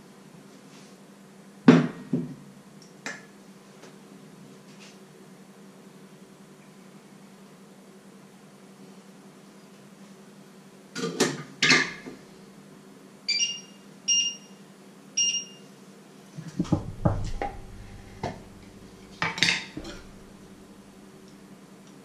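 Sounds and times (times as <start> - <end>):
short electronic beeps: 13.3 - 14.6, 15.2 - 15.6
jar knocked: 16.6 - 18.5
ceramic plate clinking: 19.3 - 20.2.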